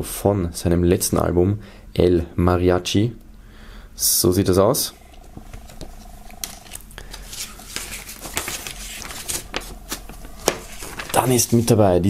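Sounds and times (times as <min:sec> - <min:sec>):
paper rustling and crackling: 0:06.4 - 0:12.0.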